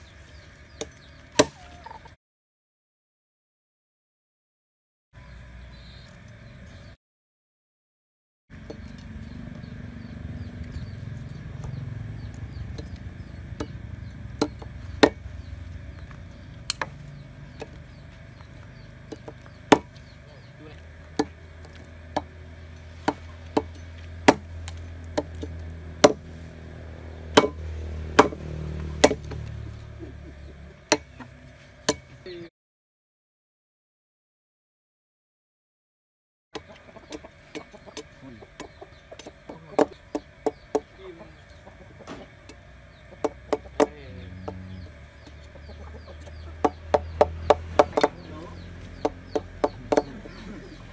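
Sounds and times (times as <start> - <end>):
knife chopping wood: 0.8 - 1.6, 12.7 - 17.8, 19.1 - 20.2, 20.8 - 26.3, 27.3 - 29.6, 30.8 - 32.1, 36.6 - 41.0, 43.2 - 45.4, 46.1 - 50.6
steady low rumble: 8.6 - 31.8.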